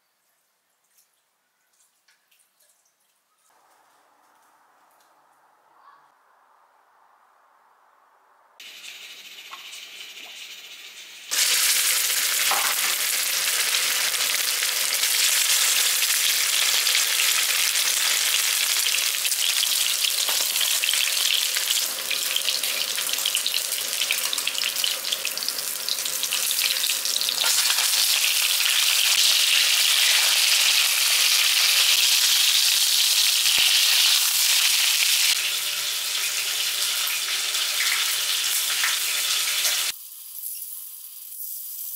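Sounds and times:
pork sizzling in hot oil: 0:08.6 - 0:41.9.

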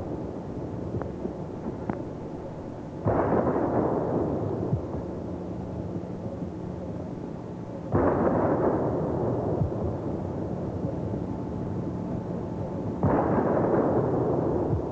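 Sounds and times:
cannon shots booming: 0:03.0 - 0:05.0, 0:07.9 - 0:09.9, 0:13.0 - 0:14.9.

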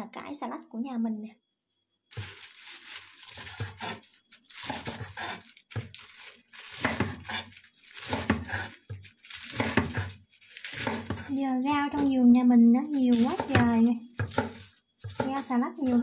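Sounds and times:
knife slicing lettuce: 0:02.2 - 0:11.4, 0:13.1 - 0:16.0.

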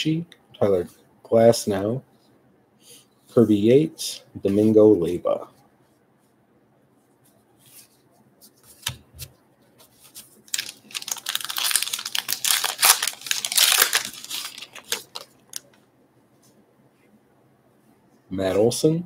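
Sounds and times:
wrapper tearing and crinkling: 0:10.5 - 0:15.8.

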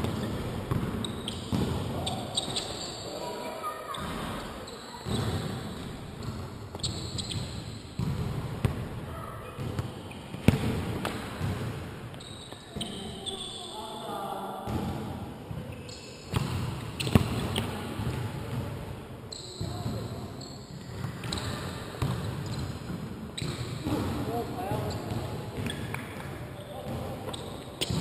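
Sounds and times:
basketball bouncing on court: 0:00.0 - 0:02.7, 0:04.0 - 0:09.0, 0:09.6 - 0:11.9, 0:16.3 - 0:18.9, 0:19.6 - 0:28.0
shoes squeaking: 0:01.0 - 0:05.4, 0:06.2 - 0:07.9, 0:12.2 - 0:13.7, 0:24.8 - 0:28.0.

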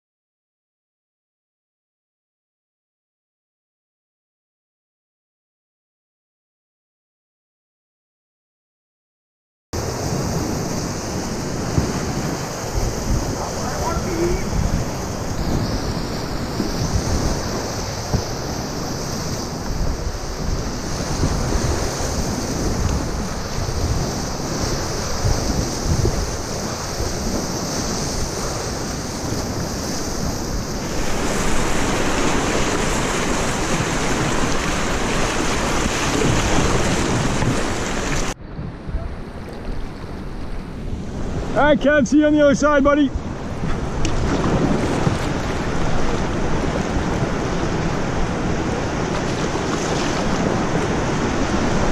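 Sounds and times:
whitewater rapids rushing: 0:09.8 - 0:38.4
wind buffeting microphone: 0:09.8 - 0:51.9.

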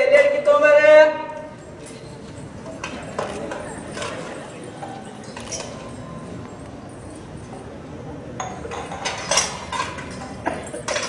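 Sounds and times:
metal plates clinking: 0:01.6 - 0:06.1, 0:08.4 - 0:11.0.

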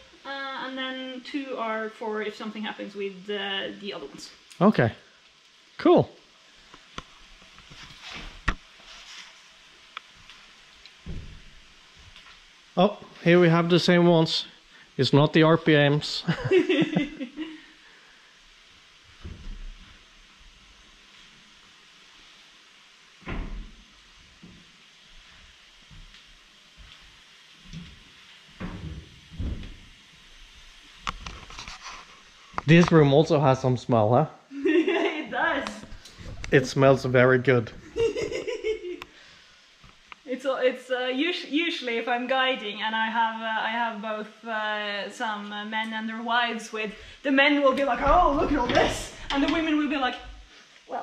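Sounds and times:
faint steady hiss: 0:00.0 - 0:51.0
soft rustles: 0:06.8 - 0:12.5, 0:31.1 - 0:32.8.

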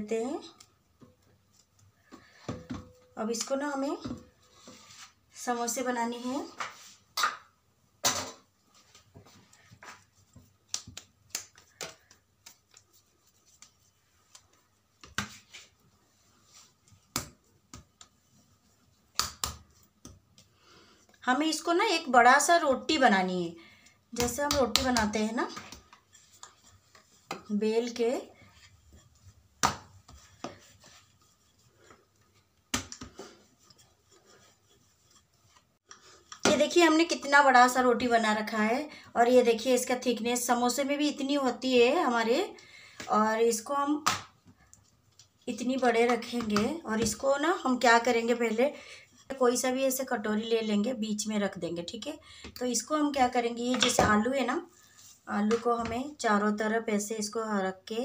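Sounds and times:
hands shaping dough on table: 0:00.0 - 0:58.0
rolling pin rubbing dough: 0:24.2 - 0:35.8.

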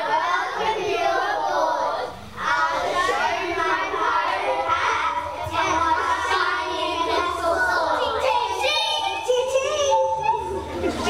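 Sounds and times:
children singing together: 0:00.0 - 0:11.0.

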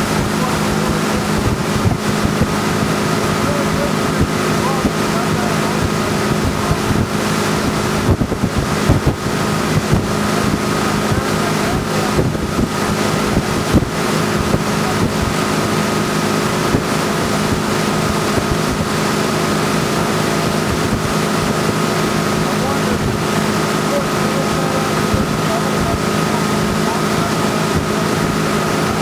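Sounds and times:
motorboat engine drone: 0:00.0 - 0:29.0
wake water rushing: 0:00.0 - 0:29.0
wind buffeting microphone: 0:00.0 - 0:29.0.

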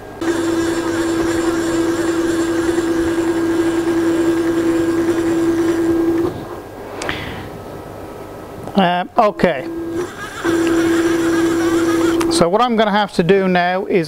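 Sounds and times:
stepper motors whining: 0:00.0 - 0:06.6, 0:09.6 - 0:12.4.

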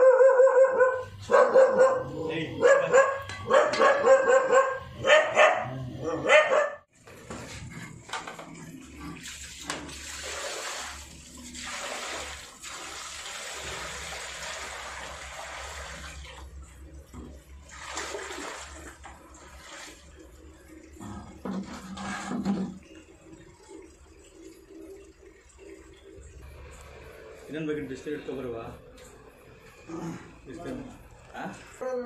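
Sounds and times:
dog barking: 0:00.0 - 0:06.9
water poured into a drain: 0:07.4 - 0:28.7.

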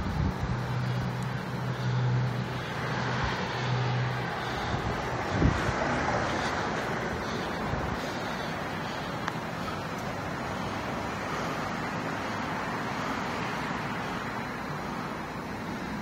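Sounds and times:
road traffic noise: 0:00.0 - 0:16.0.

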